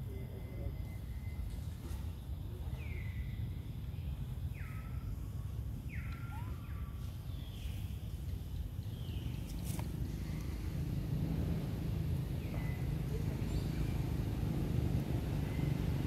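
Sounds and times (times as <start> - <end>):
low outdoor rumble: 0.0 - 16.0
high whistled animal calls: 5.9 - 7.0.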